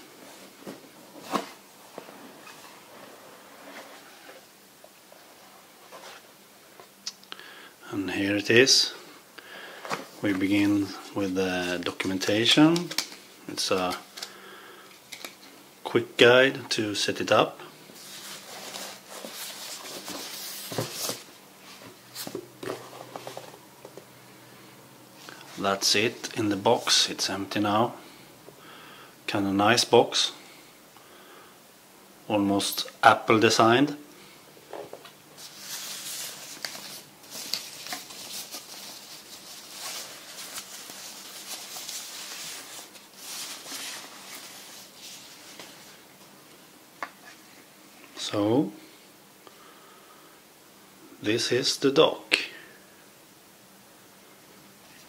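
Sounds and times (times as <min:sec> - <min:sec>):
plastic wrapping rustling: 0:18.0 - 0:23.6, 0:35.4 - 0:46.0.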